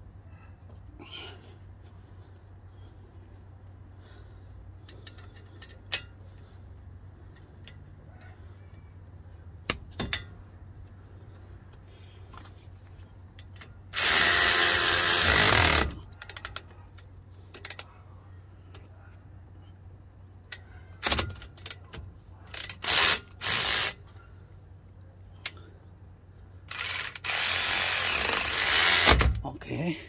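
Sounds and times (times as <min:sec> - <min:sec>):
metallic clicks of tools: 0:04.8 - 0:06.5, 0:07.3 - 0:08.9, 0:13.3 - 0:17.9, 0:20.5 - 0:24.0, 0:25.4 - 0:25.7
power wrench running: 0:13.9 - 0:16.6, 0:22.5 - 0:24.0, 0:26.7 - 0:29.3.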